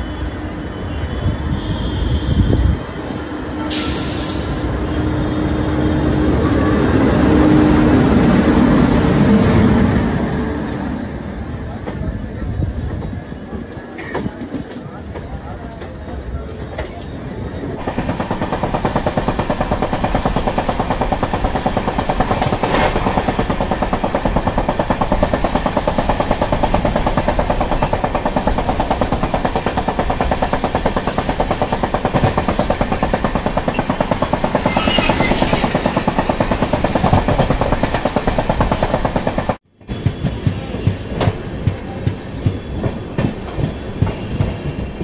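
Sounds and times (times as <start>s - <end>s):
train rumble: 0.0s - 45.0s
wheels rattling on track: 17.8s - 45.0s.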